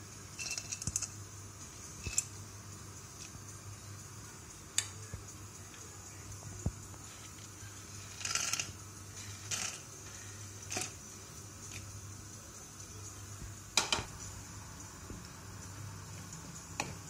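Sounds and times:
peanuts rattling into oil: 0.3 - 1.2, 7.1 - 10.0.

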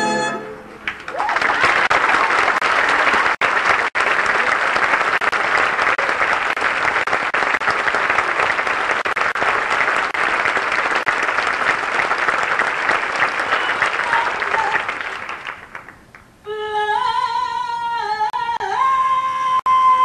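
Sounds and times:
audience applauding: 0.8 - 16.3.

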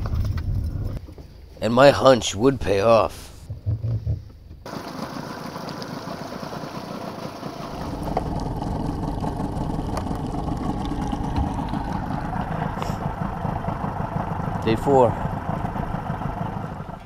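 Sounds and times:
engine running: 4.6 - 17.0.

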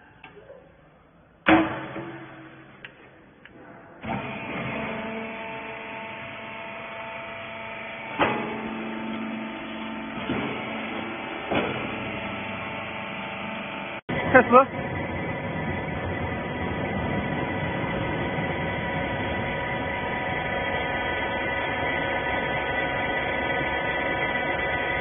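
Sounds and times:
sharp metal clunk: 1.5 - 2.8.

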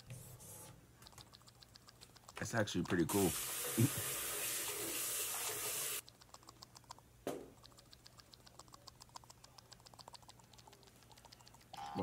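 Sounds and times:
faint rapid clicking: 1.0 - 3.1, 6.0 - 12.0
tap water running into sink: 3.1 - 6.0.

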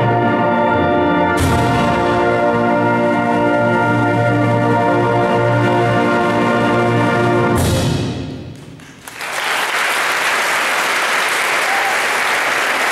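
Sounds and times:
audience applause: 8.8 - 12.9.

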